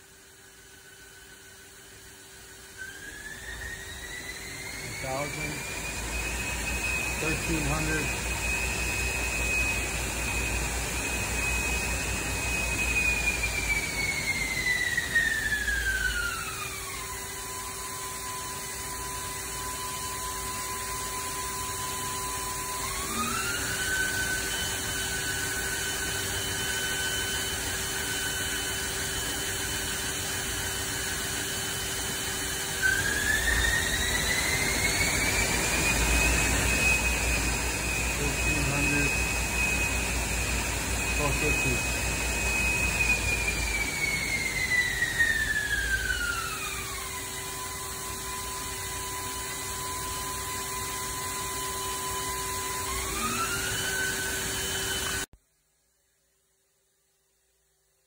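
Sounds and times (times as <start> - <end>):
lathe spindle motor whine: 0.0 - 55.3
steady low hum: 3.4 - 17.2, 32.1 - 47.3.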